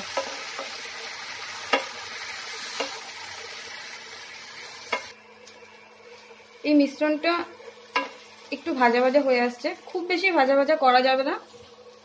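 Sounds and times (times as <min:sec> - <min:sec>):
paste sizzling in hot oil: 0:00.0 - 0:12.0
spatula knocking against pan: 0:01.7 - 0:02.0.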